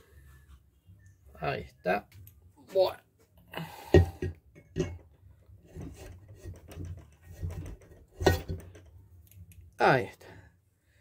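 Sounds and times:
metal parts rubbing and handling: 4.2s - 9.6s.

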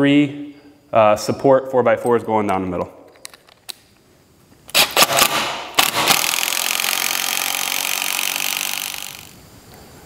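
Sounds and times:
power driver driving bolt into wood: 4.7s - 9.4s.

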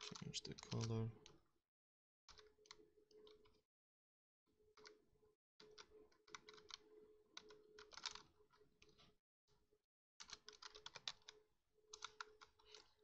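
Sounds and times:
faint keyboard typing: 0.0s - 1.4s, 2.3s - 3.6s, 4.7s - 5.0s, 5.6s - 9.2s, 10.2s - 13.0s.

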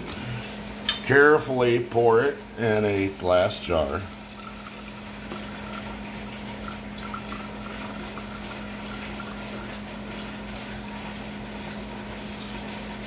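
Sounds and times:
constant low hum: 0.0s - 12.8s
liquid pouring into a glass jar: 4.0s - 12.5s.

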